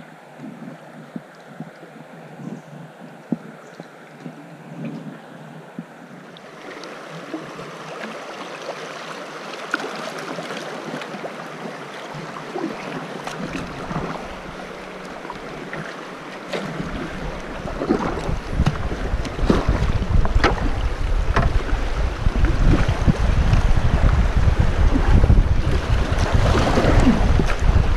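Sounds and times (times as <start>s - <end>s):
water rushing around kayak: 0.0s - 27.9s
paddle strokes splashing: 3.3s - 27.9s
low rumble: 16.8s - 27.9s.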